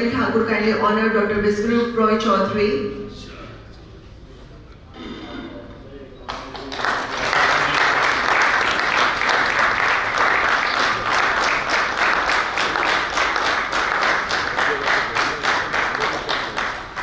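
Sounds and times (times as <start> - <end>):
audience applauding: 6.3 - 17.0.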